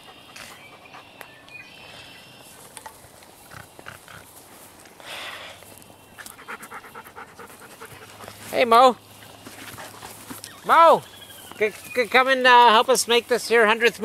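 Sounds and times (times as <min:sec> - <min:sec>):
dog panting: 0:00.0 - 0:01.2, 0:06.2 - 0:08.6, 0:09.2 - 0:10.4.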